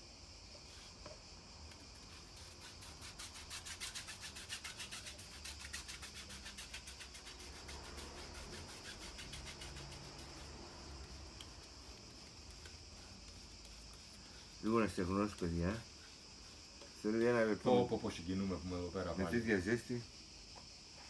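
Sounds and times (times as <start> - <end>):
scratchy rubbing on canvas: 1.8 - 18.2.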